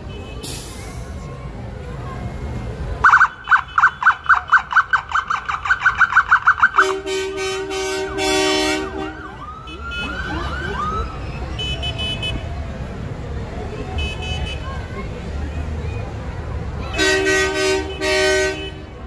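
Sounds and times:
siren yelp: 3.0 - 7.0, 8.8 - 12.5
low vehicle horn blasts: 6.8 - 10.1, 16.9 - 19.0
falling siren sweeps: 8.9 - 11.6.

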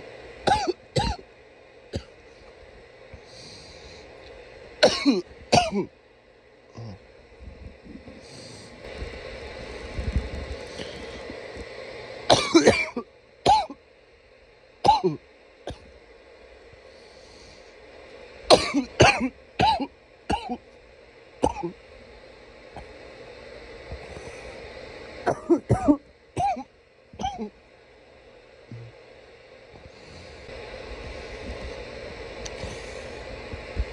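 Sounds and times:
person coughing hard: 0.5 - 1.2, 4.8 - 5.9, 12.3 - 13.8, 14.9 - 15.9, 18.5 - 20.6, 21.4 - 21.8, 25.3 - 27.5.

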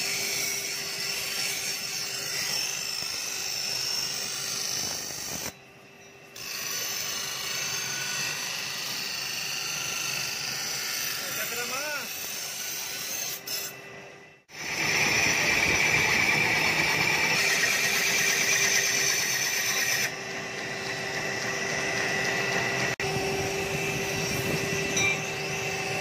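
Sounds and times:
grinding wheel running: 14.5 - 26.0.

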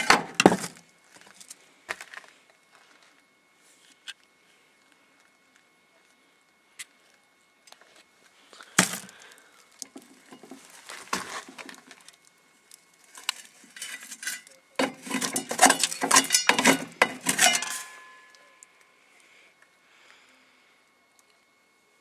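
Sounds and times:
speaker parts clinking and knocking: 14.3 - 18.4.

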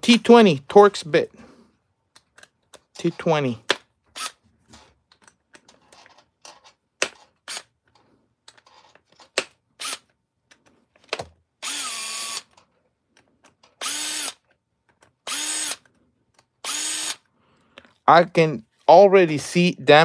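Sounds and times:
cordless drill running: 11.6 - 12.5, 13.8 - 14.4, 15.2 - 15.9, 16.6 - 17.3.

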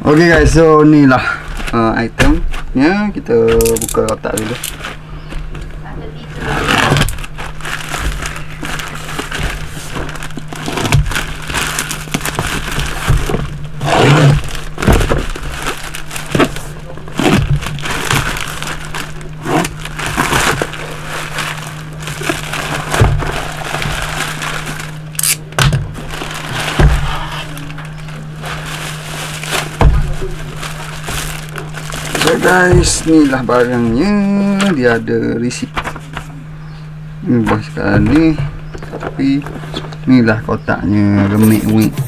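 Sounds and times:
plastic rustling and crinkling: 0.0 - 36.5
plastic mailer tearing: 3.3 - 5.0, 6.3 - 36.2.

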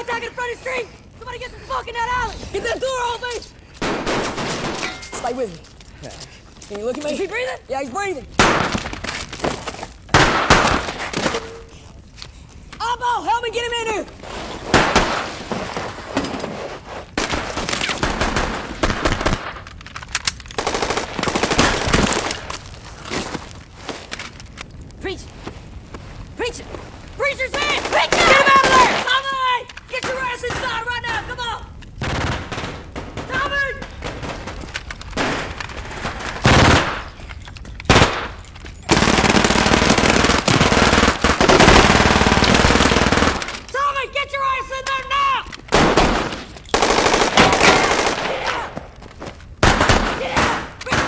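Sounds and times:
rapid automatic gunfire: 20.6 - 22.3, 38.9 - 43.5, 45.7 - 48.4
automatic rifle fire: 45.7 - 48.5.

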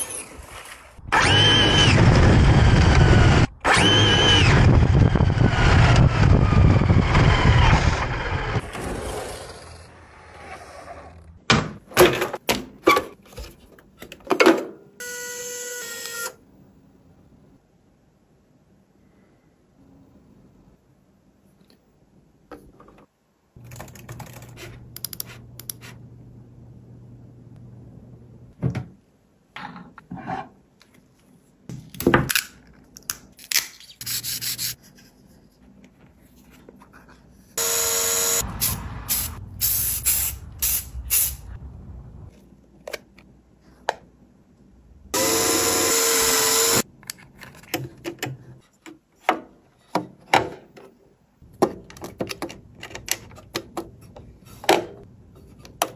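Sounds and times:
hissing burst with pitched tone: 38.2 - 41.6.

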